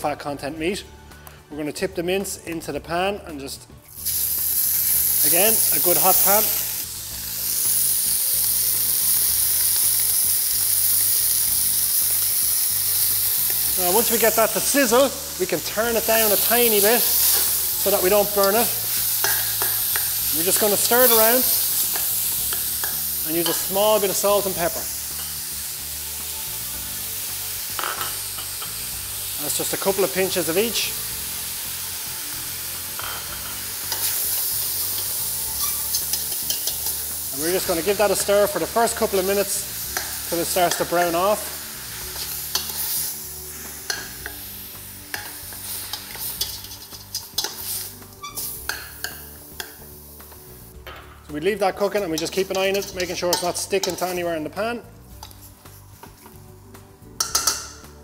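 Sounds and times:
meat sizzling in a pan: 3.9s - 50.8s, 51.6s - 54.2s
metal spoon scraping pan: 45.1s - 49.2s, 52.2s - 54.2s.

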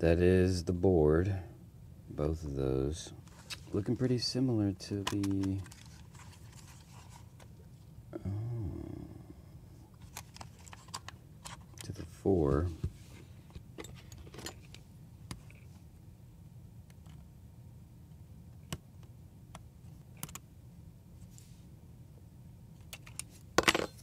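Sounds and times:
man humming: 8.1s - 9.8s.

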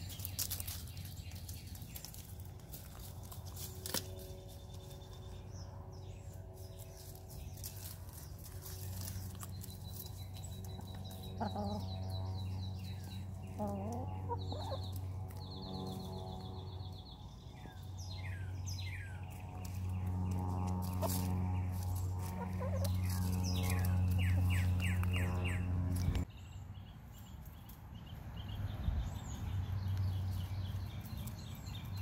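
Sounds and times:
low steady hum: 0.0s - 27.3s
songbirds chirping: 0.0s - 32.0s
hens clucking: 8.4s - 12.0s, 13.4s - 15.4s, 20.8s - 26.2s.

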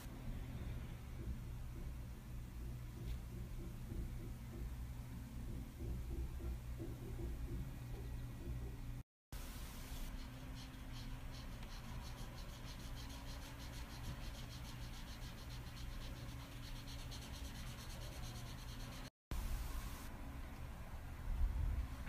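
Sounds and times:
pencil scratching on paper: 10.0s - 19.1s.

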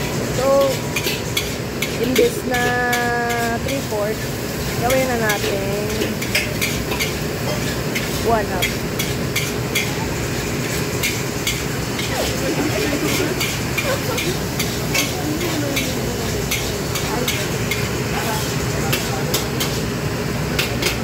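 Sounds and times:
rice sizzling: 0.0s - 21.0s
wok burner rushing: 0.0s - 21.0s
metal ladle clanking against wok: 0.6s - 3.9s, 4.8s - 10.1s, 20.6s - 21.0s.

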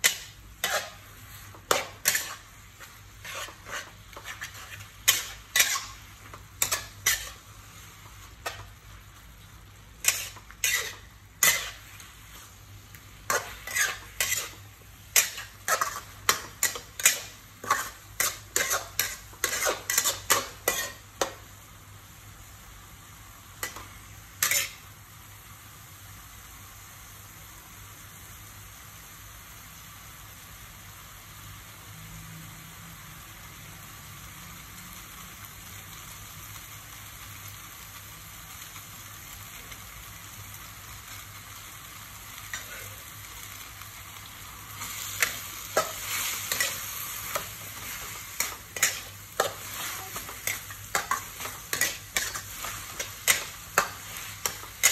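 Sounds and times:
metal spatula scraping wok: 0.0s - 21.4s, 23.6s - 24.8s, 42.5s - 43.1s, 44.7s - 54.9s
food sizzling in wok: 0.0s - 54.9s.

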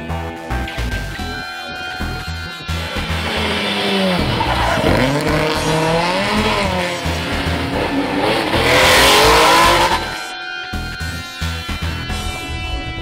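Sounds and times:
rally car engines revving: 0.6s - 10.3s.

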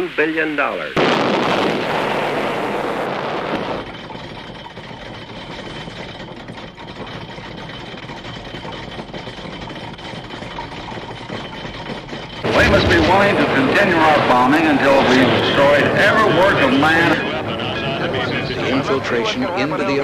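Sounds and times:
rushing explosions: 1.0s - 5.0s, 12.4s - 17.5s.

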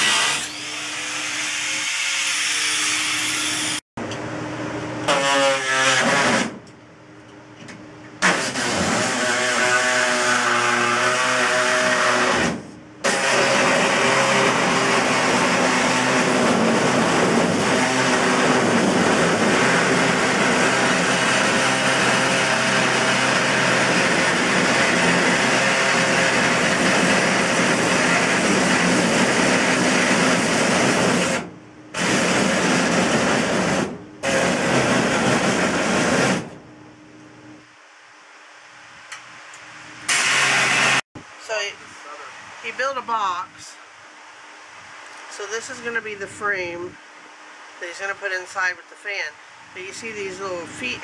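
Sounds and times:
power tool cutting sheet metal: 0.0s - 3.8s, 5.0s - 6.6s, 8.2s - 36.6s, 40.0s - 41.1s.

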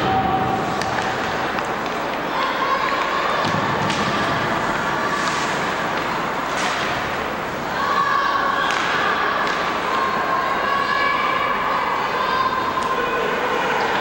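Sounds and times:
rink and crowd noise: 0.0s - 14.0s
hockey sticks and puck knocking: 0.6s - 4.3s.

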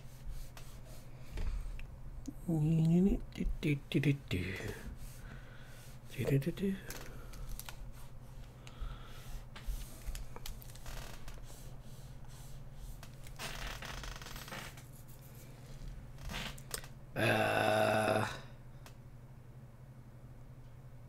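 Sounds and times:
stylus scratching on tablet: 0.0s - 1.1s
low electrical hum: 0.0s - 21.0s.

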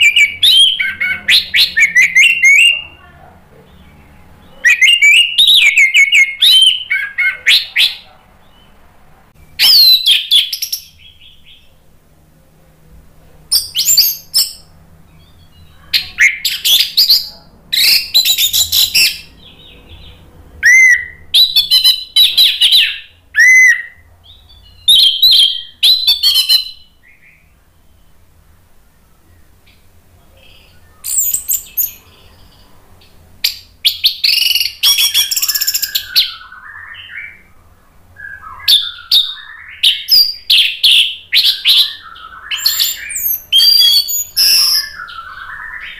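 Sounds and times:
bird singing whistled phrases: 0.0s - 3.0s, 4.5s - 8.7s, 9.4s - 11.7s, 13.5s - 28.2s, 30.4s - 32.2s, 33.4s - 37.5s, 38.2s - 45.9s.

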